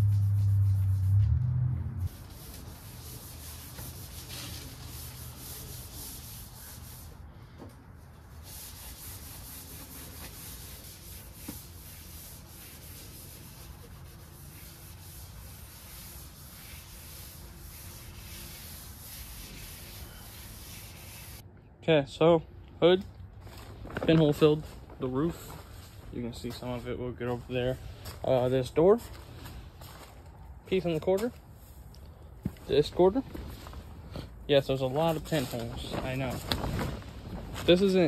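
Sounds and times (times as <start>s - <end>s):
scuff pad rubbing on car hood: 2.1s - 7.1s, 8.4s - 21.4s.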